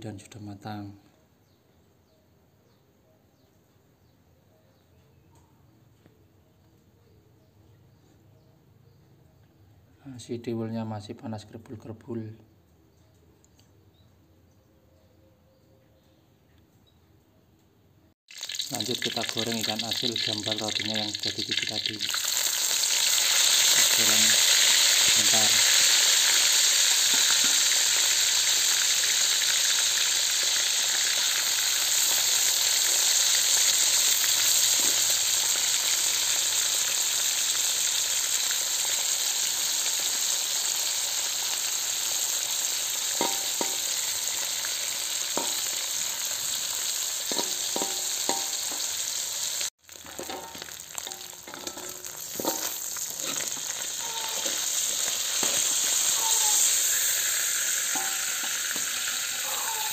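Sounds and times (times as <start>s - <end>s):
fish sizzling in hot oil: 18.3s - 59.9s
metal spatula scraping a wok: 47.3s - 49.0s, 50.0s - 59.9s.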